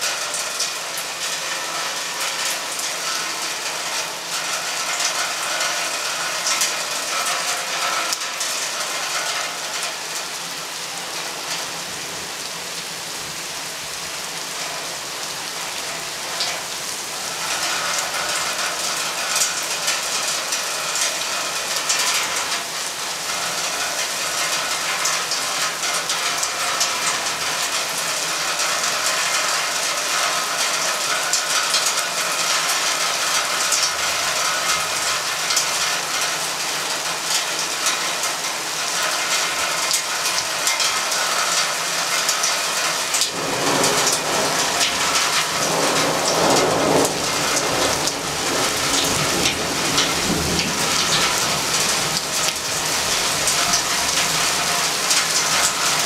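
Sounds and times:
steady rain falling: 0.0s - 56.0s
low thunder rumble: 43.3s - 52.2s.

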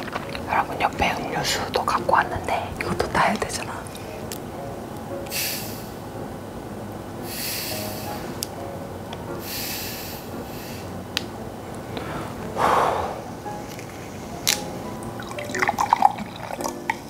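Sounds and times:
gas hissing from soda bottle: 5.2s - 6.1s, 7.2s - 8.6s, 9.3s - 14.7s.

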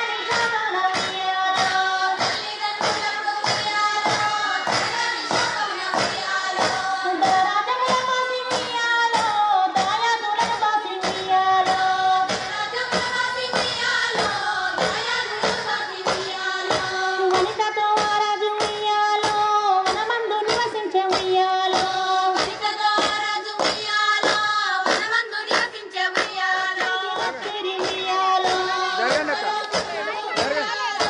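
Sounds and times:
women and children singing: 0.0s - 31.0s
steady hand clapping: 0.2s - 31.0s.

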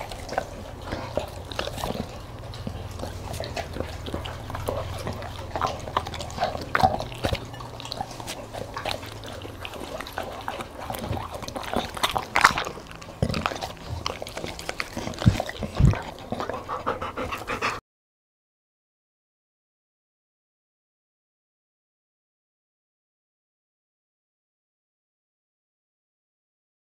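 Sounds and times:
dog chewing and crunching: 0.0s - 17.8s.

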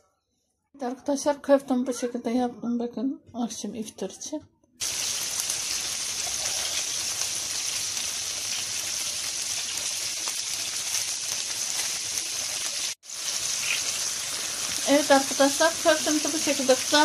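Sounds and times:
patties sizzling in hot oil: 4.8s - 17.0s.

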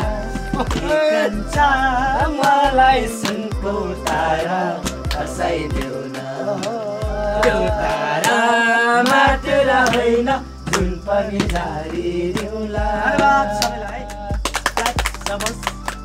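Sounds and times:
hand claps: 0.0s - 1.0s, 2.3s - 6.8s, 7.4s - 10.1s, 10.7s - 11.8s, 12.4s - 12.6s, 13.2s - 16.0s
group of men singing: 0.0s - 14.7s.

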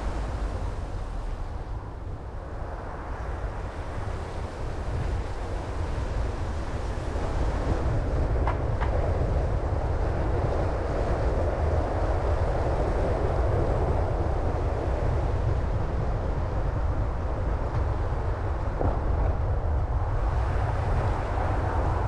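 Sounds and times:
car driving rumble: 0.0s - 2.1s.

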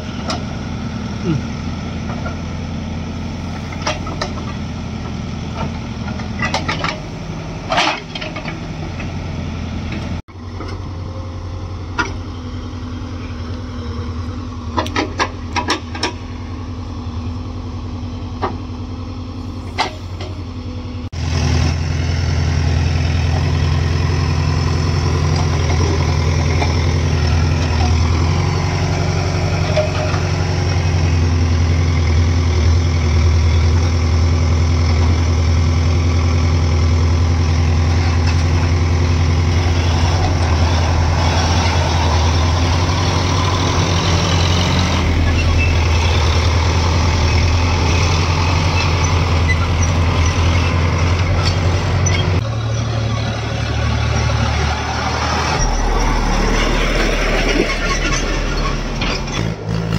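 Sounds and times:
diesel engines running: 0.0s - 59.9s
loud engine hum: 0.0s - 59.9s.

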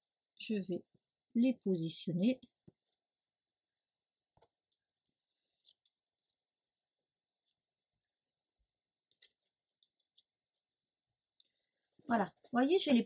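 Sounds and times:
paper pieces ticking and tapping: 4.3s - 11.6s.

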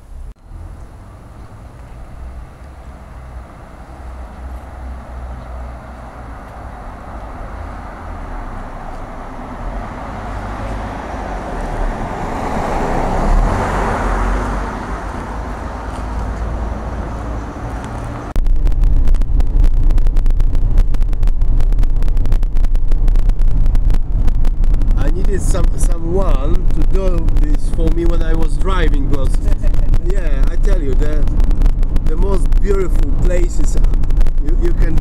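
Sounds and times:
buffeting noise inside moving car: 0.0s - 35.0s
car driving past on wet street: 0.4s - 18.4s.

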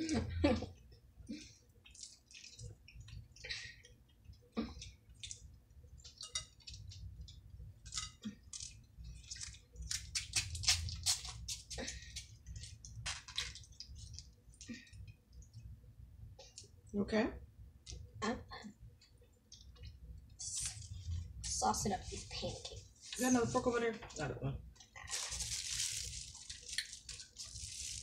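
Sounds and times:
sauce squishing and squirting: 1.6s - 4.0s, 4.8s - 15.6s
paper packets tearing: 25.0s - 28.0s.

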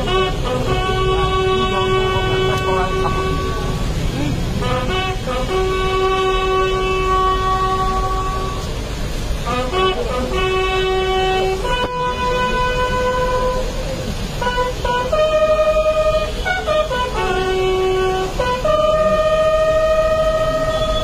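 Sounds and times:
bugle call: 0.0s - 3.8s, 4.6s - 8.7s, 14.4s - 21.0s.

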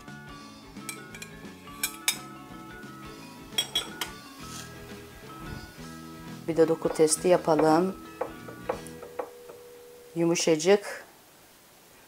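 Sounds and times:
soft background music: 0.0s - 10.8s
cutlery clinking on plates: 0.8s - 2.3s, 3.5s - 4.2s.

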